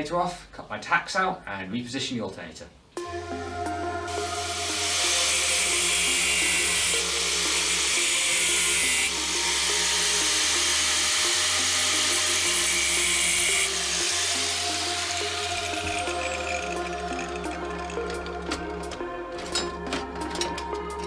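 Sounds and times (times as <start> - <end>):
background music: 2.9 - 21.0
angle grinder cutting steel: 4.1 - 19.8.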